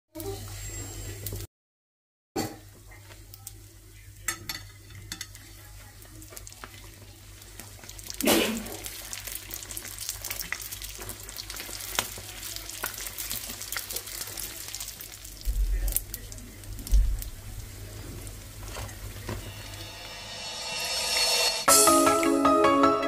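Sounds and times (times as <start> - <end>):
pies sizzling in hot oil: 0.2 - 1.5, 2.4 - 21.8.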